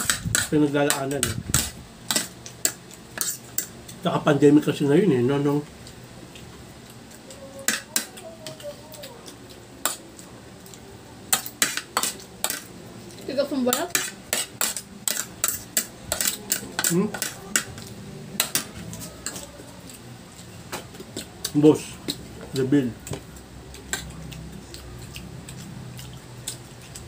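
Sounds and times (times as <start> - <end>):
cutlery clinking on plates: 13.9 - 17.7, 18.4 - 19.5.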